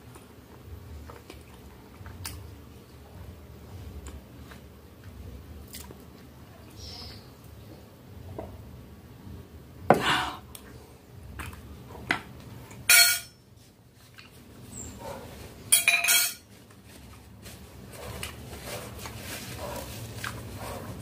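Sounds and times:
soft chewing: 0.0 - 7.9, 13.6 - 15.5, 16.6 - 21.0.

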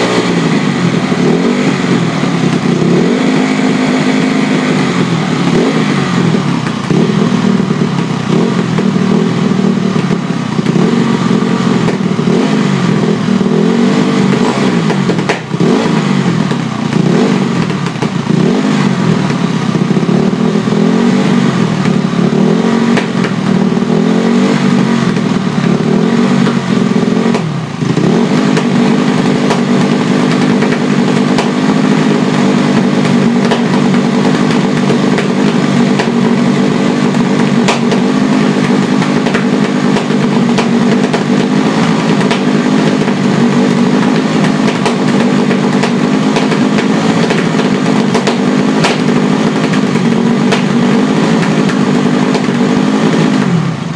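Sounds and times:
motorcycle engine fast idle: 0.0 - 24.0, 24.6 - 53.9
engine backfire pops: 0.0 - 53.9.

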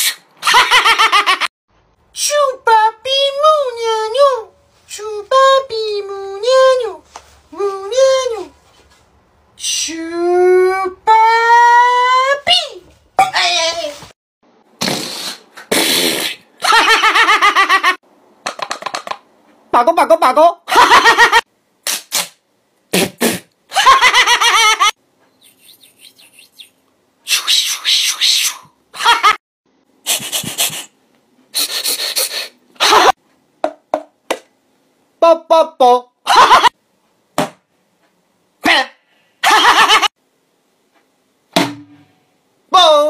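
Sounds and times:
balloon squealing: 14.8 - 16.4
masking tape ripping off roll: 21.8 - 22.4.

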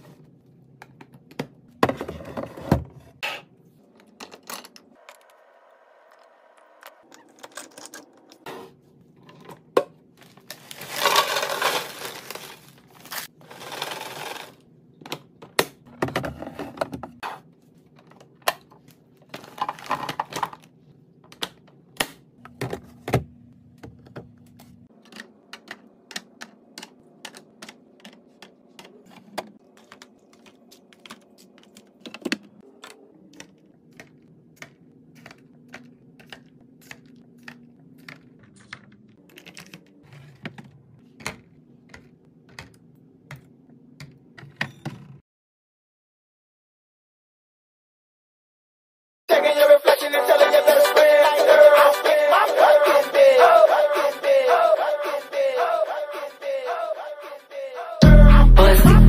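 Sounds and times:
kitchen containers clattering: 10.7 - 12.6.

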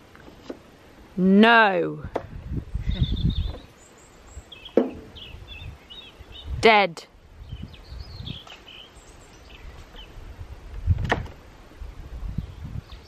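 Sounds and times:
faint bird chirps: 2.7 - 6.6.

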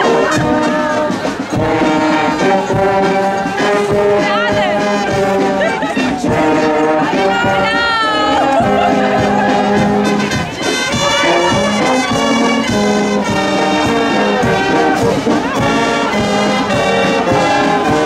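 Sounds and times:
brass band playing a tune: 0.0 - 18.0
steady beat: 0.0 - 18.0.

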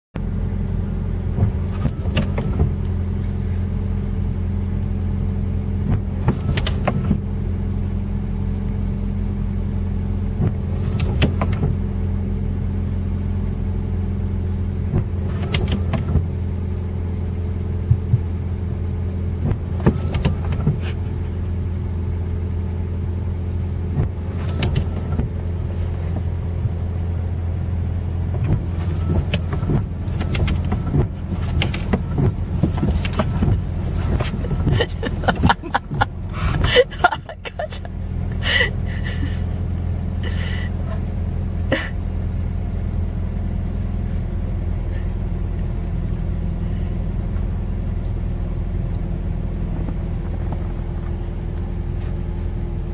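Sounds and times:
car engine idling: 0.2 - 52.9
windshield wipers sweeping: 1.2 - 3.6, 5.7 - 7.4, 8.3 - 12.1, 14.8 - 16.6, 17.8 - 18.5, 19.2 - 21.6, 23.8 - 37.9.

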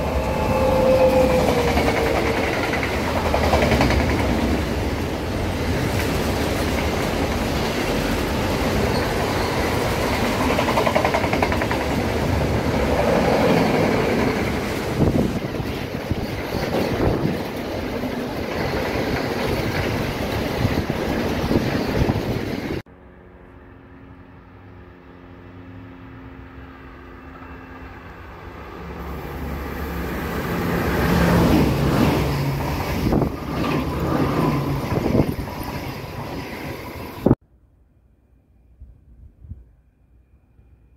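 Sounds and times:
passenger train humming past: 0.0 - 37.4
freight train passing at speed: 0.0 - 40.9.

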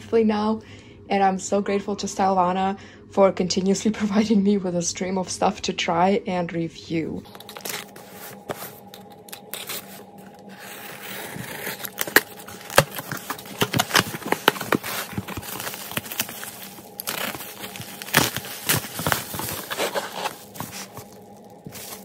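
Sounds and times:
bubble wrap crinkling: 7.2 - 22.0
knife slitting packing tape: 10.6 - 21.1
cardboard flaps handled: 11.0 - 22.0.

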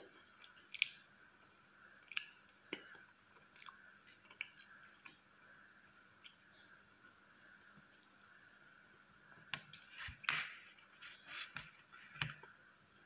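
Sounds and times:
chewing soft cake: 0.0 - 1.1, 1.8 - 5.3.

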